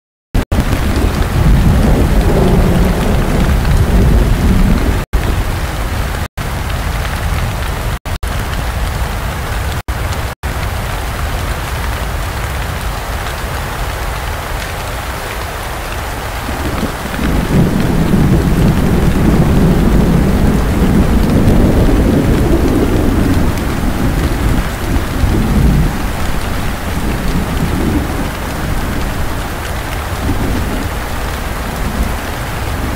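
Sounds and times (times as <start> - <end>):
heavy rain: 0.4 - 32.9
wind gusting against microphone: 0.5 - 5.9, 15.6 - 32.9.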